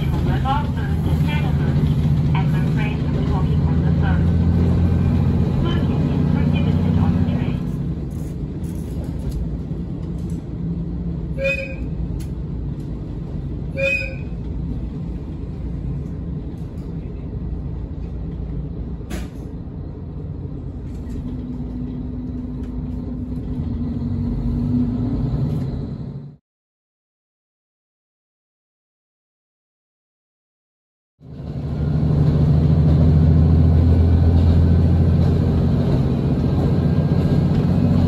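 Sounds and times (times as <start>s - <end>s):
railcar engine and wheels rumbling: 0.0s - 26.4s, 31.2s - 38.0s
railcar horn: 11.3s - 12.0s, 13.7s - 14.4s.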